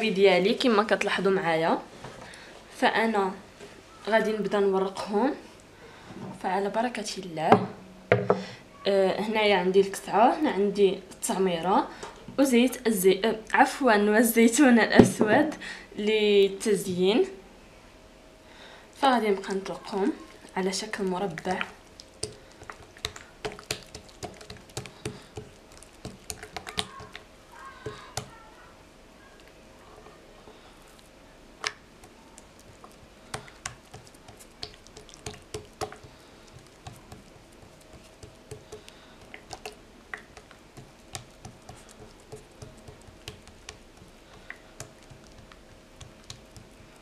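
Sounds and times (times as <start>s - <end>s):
hands slapping dough: 21.3s - 28.4s, 31.6s - 47.0s.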